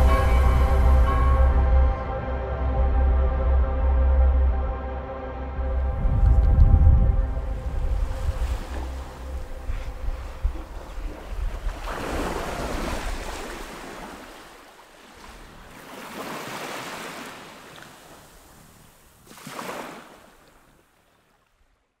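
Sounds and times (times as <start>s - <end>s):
low rumble: 0.0s - 11.8s
wind: 0.0s - 22.0s
rushing water: 5.6s - 21.9s.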